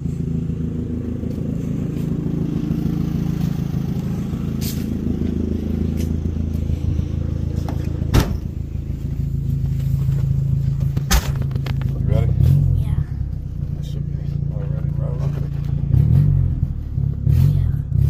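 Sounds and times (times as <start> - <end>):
car engine idling: 0.0 - 18.0
sharp thump: 8.1 - 8.5, 10.9 - 11.8.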